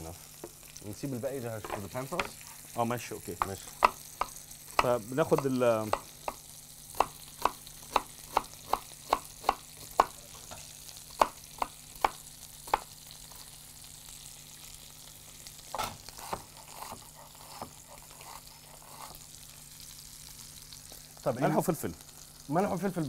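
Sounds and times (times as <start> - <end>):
steak sizzling in pan: 0.0 - 23.0
knife chopping on wooden board: 3.4 - 10.2, 11.2 - 12.9, 15.8 - 19.1.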